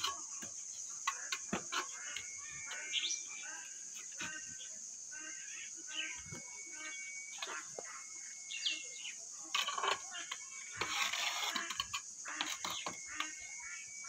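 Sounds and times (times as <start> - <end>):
stone tiles knocking and scraping: 0.0 - 2.8, 9.6 - 13.4
birds chirping: 0.0 - 14.0.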